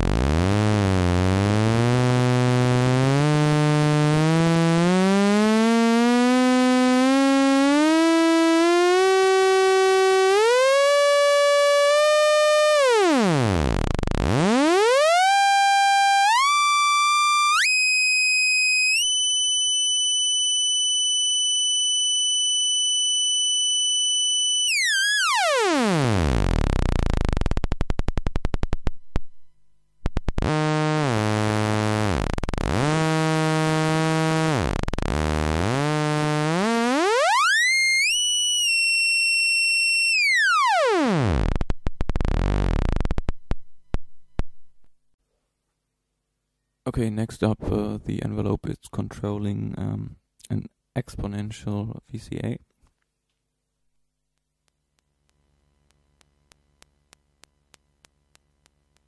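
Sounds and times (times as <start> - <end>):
buzzy synth tone: 0.0 - 45.0.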